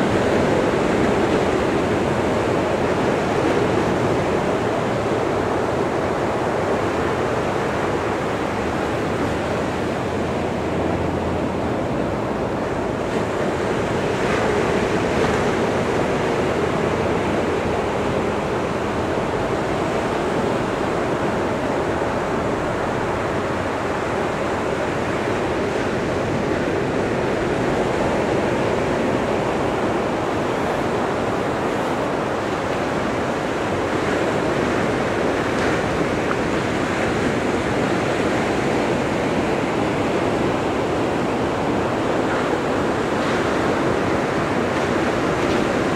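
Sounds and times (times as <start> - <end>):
small waves breaking on beach: 0.0 - 45.9.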